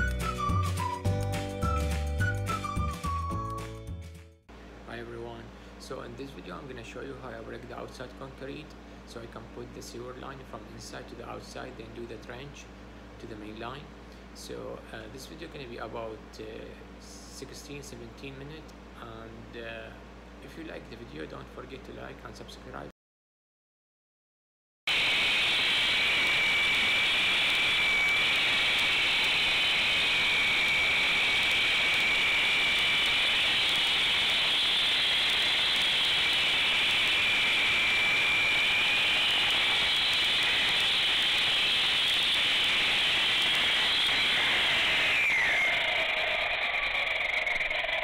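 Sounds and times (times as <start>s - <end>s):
concrete saw whining: 24.9s - 48.0s.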